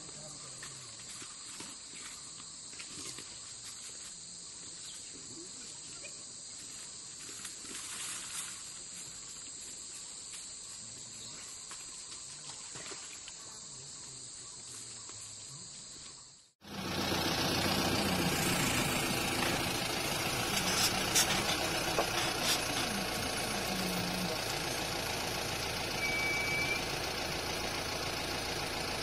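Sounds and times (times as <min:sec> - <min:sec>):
insect chorus: 0:00.0 - 0:29.0
faint clicks and rustles: 0:19.4 - 0:24.6.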